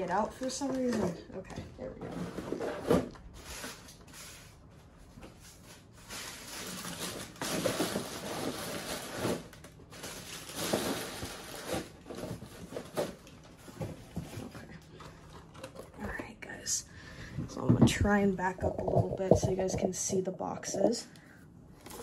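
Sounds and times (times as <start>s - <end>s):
packaging rustling and scraping: 1.8s - 16.3s, 21.8s - 22.0s.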